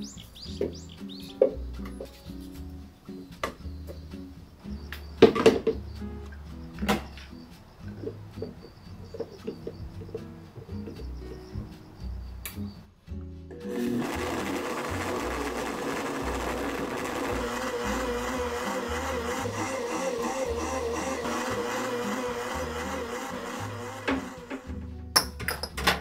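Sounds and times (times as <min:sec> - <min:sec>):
blender running at high speed: 0:13.7 - 0:24.7.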